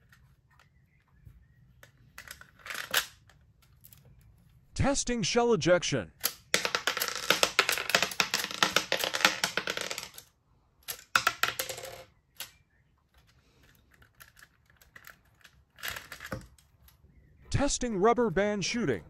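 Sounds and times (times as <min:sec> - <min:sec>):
faint clicks of plastic parts: 0:00.0 - 0:04.6, 0:12.3 - 0:17.1.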